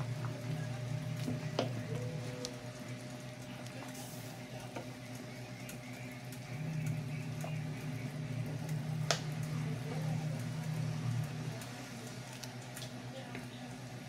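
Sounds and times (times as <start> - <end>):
water boiling and bubbling: 0.0 - 14.0.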